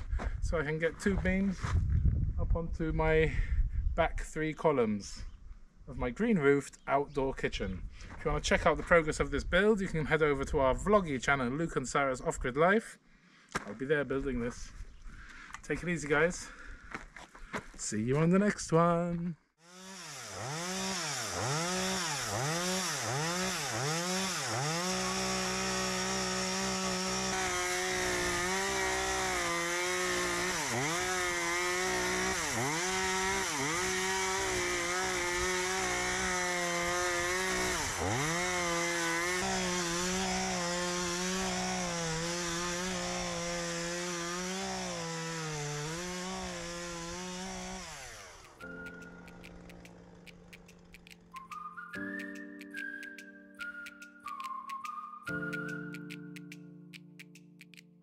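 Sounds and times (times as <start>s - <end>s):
chainsaw revving and cutting log: 19.6s - 51.5s.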